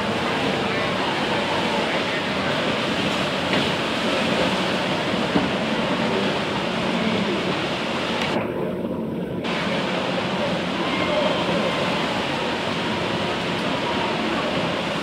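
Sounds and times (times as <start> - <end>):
motorboat engines droning: 0.0 - 15.0
water rushing and spraying: 0.0 - 15.0.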